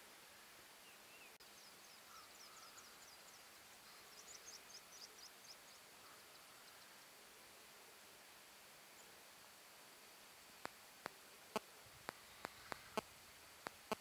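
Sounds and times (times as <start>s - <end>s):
small bird calling: 0.8s - 7.0s, 10.6s - 14.0s.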